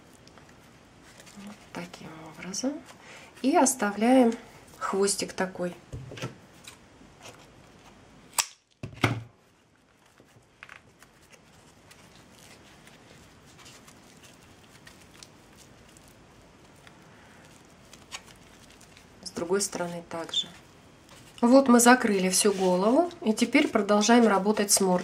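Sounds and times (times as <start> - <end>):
hands working jute strips: 9.4 - 25.0.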